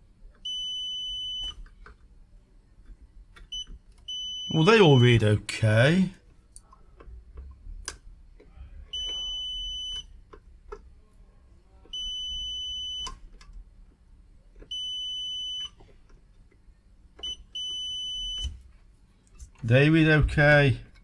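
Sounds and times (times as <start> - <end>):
multimeter beeps: 0.4 - 1.6, 3.5 - 5.2, 8.9 - 10.2, 11.9 - 13.2, 14.7 - 15.8, 17.2 - 18.6.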